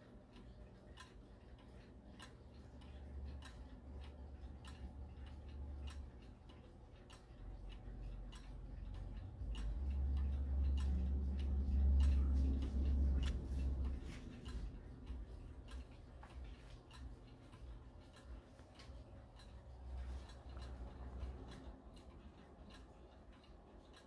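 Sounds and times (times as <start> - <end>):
pendulum clock ticking: 0.0 - 24.0
low rumble: 8.2 - 17.0.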